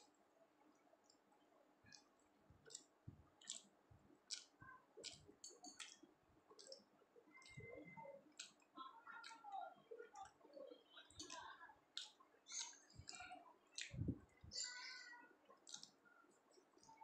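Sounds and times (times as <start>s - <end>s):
wet mouth chewing clicks: 1.9s - 9.5s, 11.1s - 14.5s, 15.5s - 17.0s.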